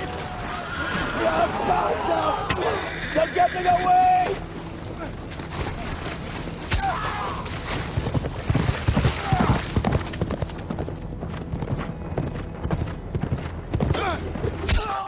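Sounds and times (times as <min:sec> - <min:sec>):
horse whinny: 0:00.4 - 0:01.7
hooves thudding: 0:07.4 - 0:14.7.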